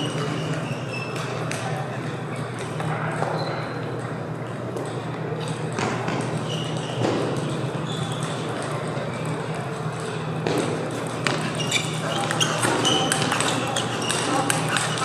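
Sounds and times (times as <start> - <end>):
distant voices: 0.0 - 15.0
ventilation hum: 0.0 - 15.0
ping pong balls knocking: 5.6 - 15.0.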